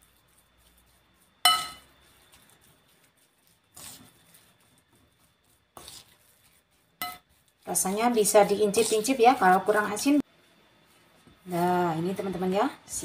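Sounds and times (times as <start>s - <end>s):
spoon clinking porcelain bowl: 1.5s - 1.8s.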